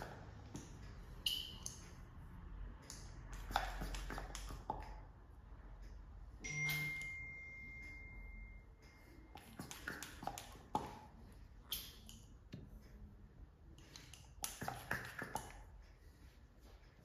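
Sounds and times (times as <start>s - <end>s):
chime-like ping: 6.4s - 8.7s
plastic cups clicking on skin: 9.4s - 11.0s, 14.0s - 15.6s.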